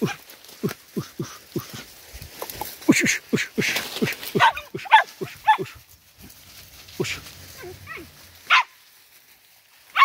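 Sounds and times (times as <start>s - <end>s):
dog yelping: 4.3s - 5.8s.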